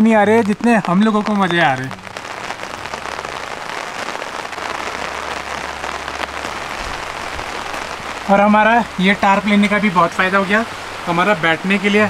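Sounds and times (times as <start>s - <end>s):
rain on a tarp: 0.0s - 12.0s.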